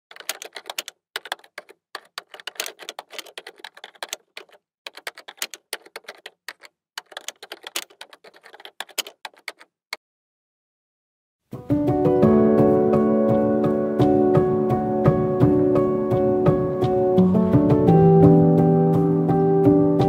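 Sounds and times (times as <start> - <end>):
typewriter keys clacking: 0.1 - 9.7.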